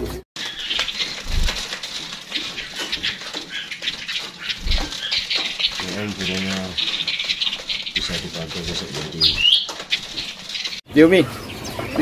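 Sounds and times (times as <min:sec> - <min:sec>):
small birds chirping: 0:00.4 - 0:12.0.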